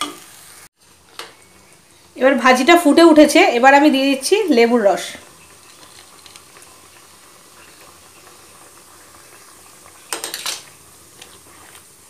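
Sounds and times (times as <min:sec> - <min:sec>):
food bubbling in a pan: 0:00.4 - 0:12.0
utensil clattering against pan: 0:10.1 - 0:10.6.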